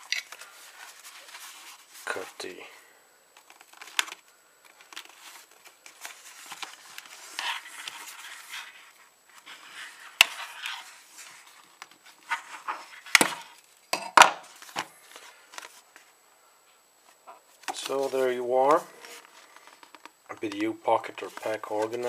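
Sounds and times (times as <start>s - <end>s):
rustling of card and fabric: 0.0s - 2.7s, 3.4s - 13.8s, 14.4s - 22.0s.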